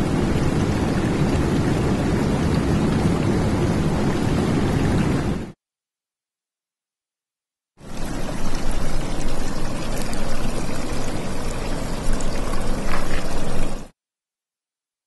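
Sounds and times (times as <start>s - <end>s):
rushing pouring water: 0.0s - 5.6s, 7.8s - 13.9s.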